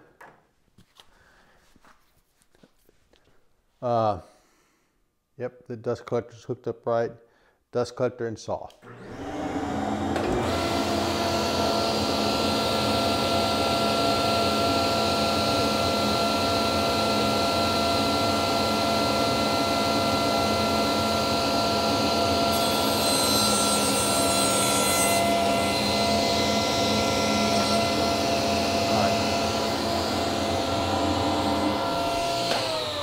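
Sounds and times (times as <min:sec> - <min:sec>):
saw cutting wood: 0:08.9 - 0:33.0
table saw whine: 0:08.9 - 0:33.0.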